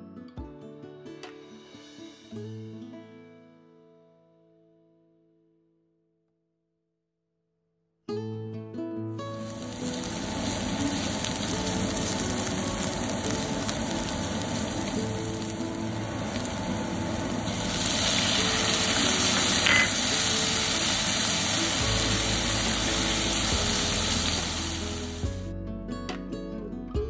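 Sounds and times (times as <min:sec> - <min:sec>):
soft background music: 0:08.6 - 0:27.0
onions sizzling in a frying pan: 0:09.3 - 0:25.5.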